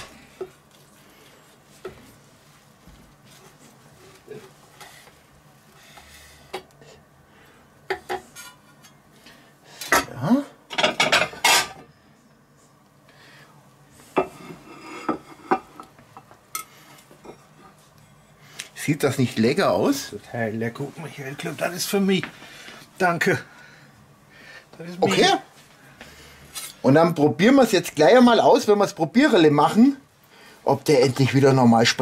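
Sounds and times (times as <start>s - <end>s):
cutlery scraping and clinking on plate: 8.0s - 9.0s, 14.2s - 15.9s.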